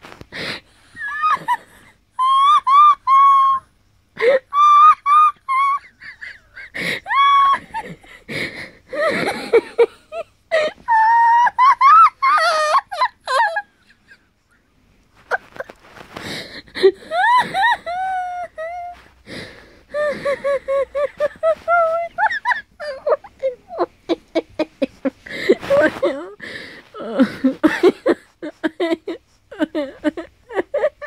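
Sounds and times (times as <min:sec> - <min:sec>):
wheezing gasping breaths: 0:00.3 - 0:02.0, 0:06.4 - 0:07.1, 0:07.7 - 0:09.5, 0:15.6 - 0:18.2, 0:18.8 - 0:22.1, 0:25.1 - 0:27.7
woman laughing squeakily: 0:01.0 - 0:08.2, 0:08.9 - 0:14.2, 0:15.3 - 0:19.1, 0:19.9 - 0:31.0.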